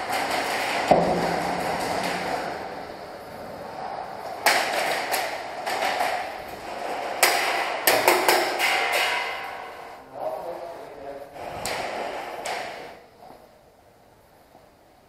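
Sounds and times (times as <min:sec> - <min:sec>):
steady hiss: 0:00.0 - 0:15.0.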